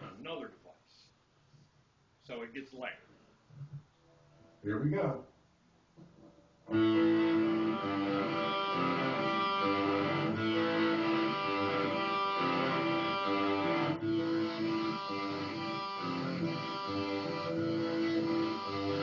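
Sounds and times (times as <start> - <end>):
electric guitar lead melody: 6.7 - 19.0
rhythm backing track: 6.7 - 19.0.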